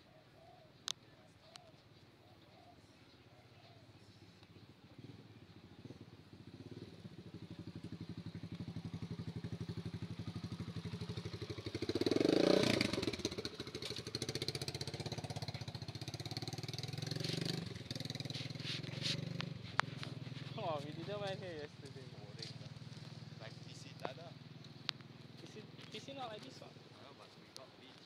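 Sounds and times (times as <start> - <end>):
small motorbike engine running: 4.9 - 26.6.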